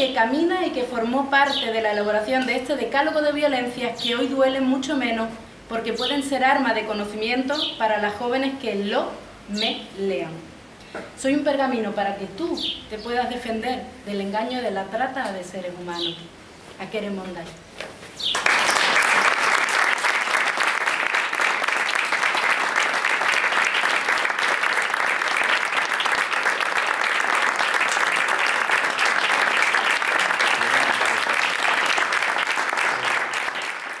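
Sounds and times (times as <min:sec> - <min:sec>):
audience applauding: 0:18.3 - 0:34.0.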